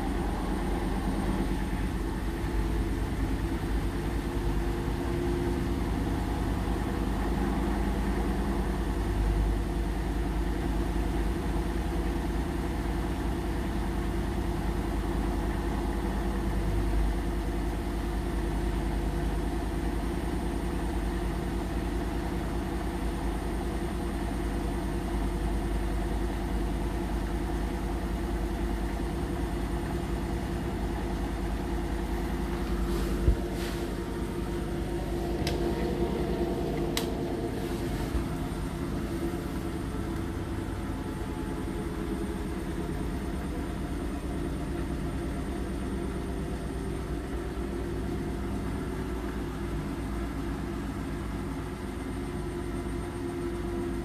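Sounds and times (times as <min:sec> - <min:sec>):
washing machine motor hum: 0:00.0 - 0:54.0
washing machine drum rumble: 0:28.4 - 0:44.4.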